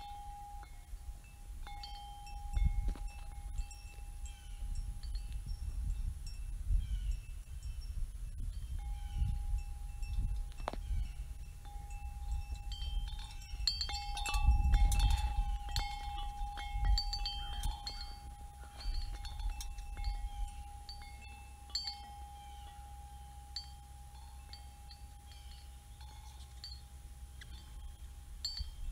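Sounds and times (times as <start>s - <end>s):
wind chimes ringing: 0.0s - 28.9s.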